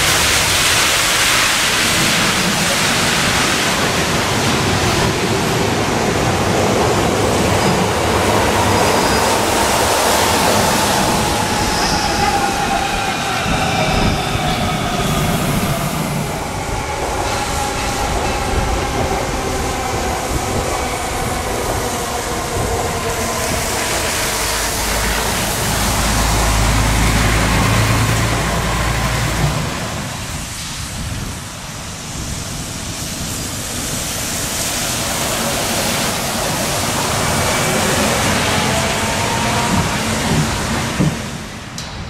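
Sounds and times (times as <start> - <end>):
tyre hiss on wet road: 0.0 - 5.6, 23.2 - 41.4
bus engine rumbling: 0.0 - 31.7.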